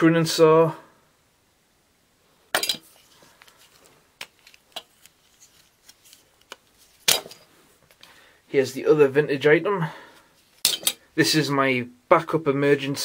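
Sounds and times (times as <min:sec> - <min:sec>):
metal tools clinking together: 0:02.6 - 0:02.8, 0:10.6 - 0:11.0
tools clattering: 0:02.6 - 0:03.0, 0:07.1 - 0:07.5, 0:10.6 - 0:11.0.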